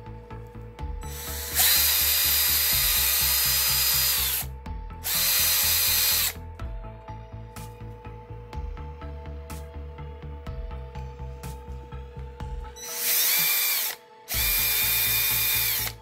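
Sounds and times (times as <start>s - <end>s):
music with steady beat: 0.0s - 16.0s
cordless drill motor running: 1.1s - 6.4s, 12.8s - 16.0s.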